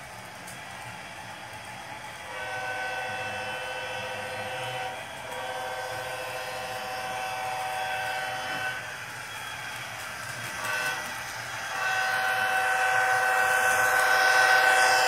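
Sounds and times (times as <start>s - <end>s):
air horn blasts: 2.3s - 8.8s, 10.6s - 11.1s, 11.7s - 15.0s.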